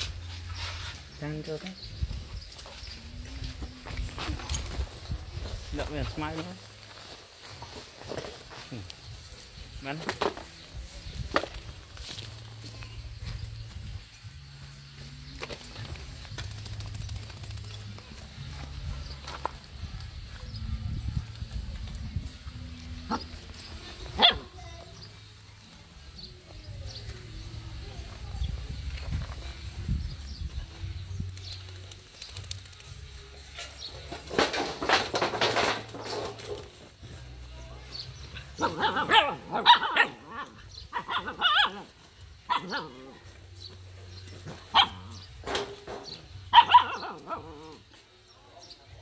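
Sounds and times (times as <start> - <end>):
puppy barking: 24.2 - 24.6, 38.6 - 41.9, 42.5 - 43.0, 44.7 - 45.2, 46.5 - 47.8.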